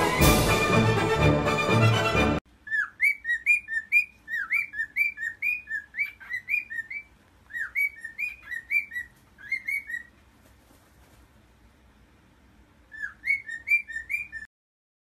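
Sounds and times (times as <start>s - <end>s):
cockatiel chirping: 2.6s - 10.2s, 12.9s - 14.5s.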